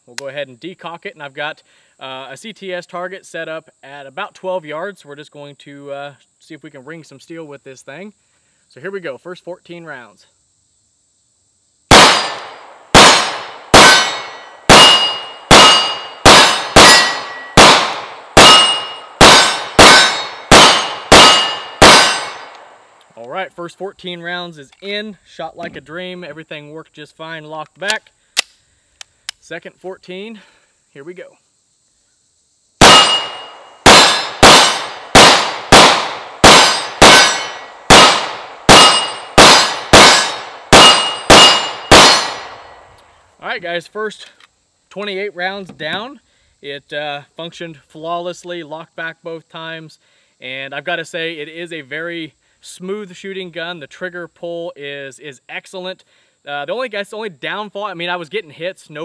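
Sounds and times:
pistol shots: 11.9 - 22.7, 32.8 - 42.8
steel target ringing: 13.0 - 22.5, 32.8 - 42.8.

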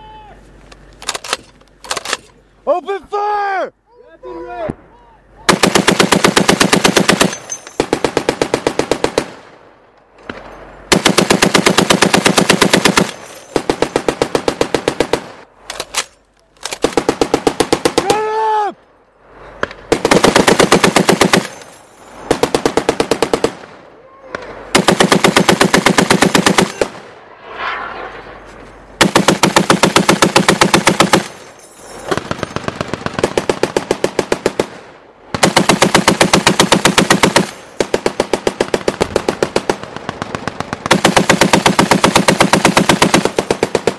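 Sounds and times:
heavy machine gun firing bursts: 5.5 - 9.4, 10.9 - 15.4, 16.8 - 18.0, 19.9 - 21.5, 22.3 - 23.6, 24.7 - 27.0, 29.0 - 31.4, 32.2 - 34.8, 35.4 - 43.9.

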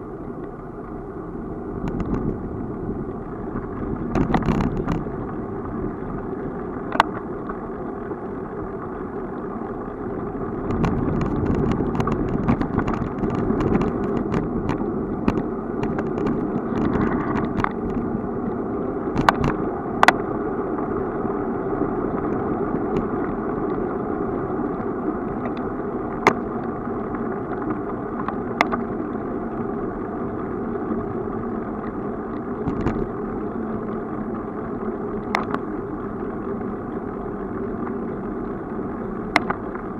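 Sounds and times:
bicycle rolling over asphalt: 0.0 - 39.9
bike rattling: 1.8 - 23.2.

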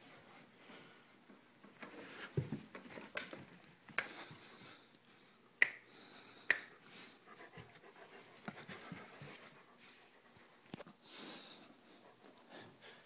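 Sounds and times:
dog panting: 7.0 - 10.6.

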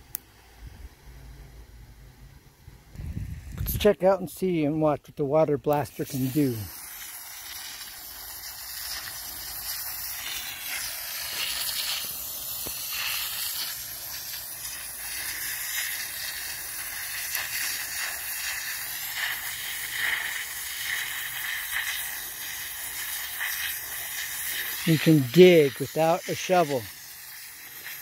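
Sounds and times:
water jet hissing and splashing: 5.7 - 28.0.

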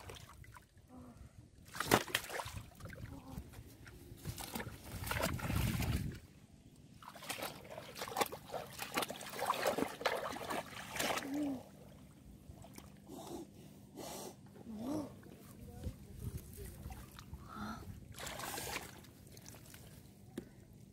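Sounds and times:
hands splashing in water: 1.7 - 3.0.

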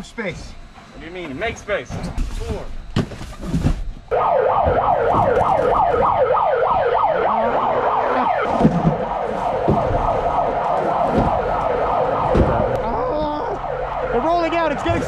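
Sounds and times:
siren wailing: 4.1 - 15.0.

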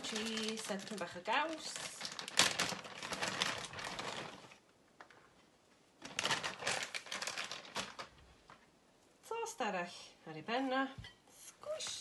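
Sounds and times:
plastic bag crinkling: 0.0 - 4.6, 6.0 - 8.3.

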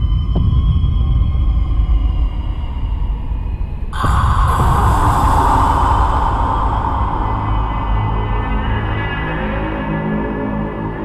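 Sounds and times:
deep rumbling drone: 0.0 - 11.0
low thud: 4.0 - 9.2.

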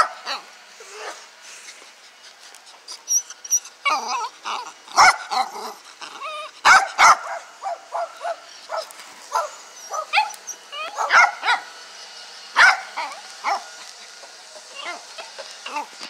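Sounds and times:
small dog barking: 0.0 - 1.2, 3.9 - 5.8, 6.6 - 11.8, 12.5 - 13.9.

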